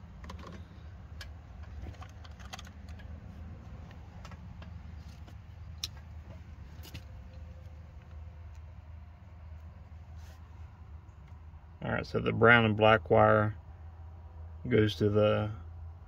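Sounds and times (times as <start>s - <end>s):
connectors and wires rattling: 0.0s - 8.6s.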